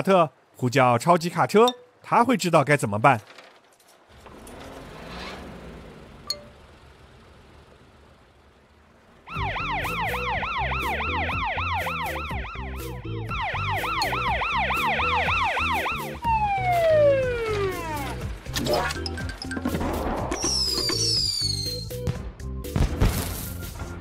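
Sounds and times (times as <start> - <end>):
cartoon police siren wailing: 9.2 - 18.1
falling whistle: 20.4 - 22.0.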